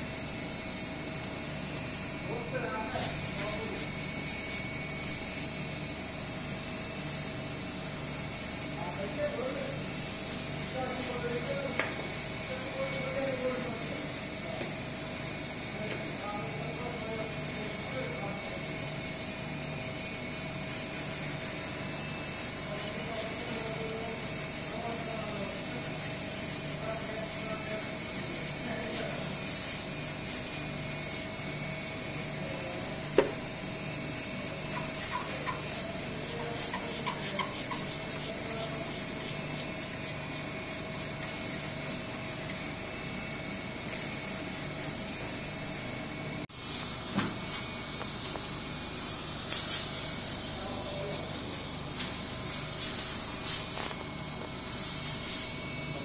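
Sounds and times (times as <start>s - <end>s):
steady hiss and hum: 1.2s - 45.0s, 46.4s - 56.0s
chisel scraping wood: 34.7s - 41.6s.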